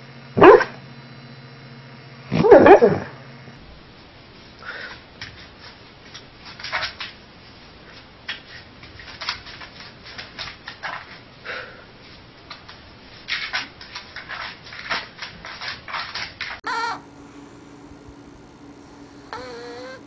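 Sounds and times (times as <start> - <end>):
dog paws scratching a wall: 5.2 - 11.3, 12.6 - 16.9.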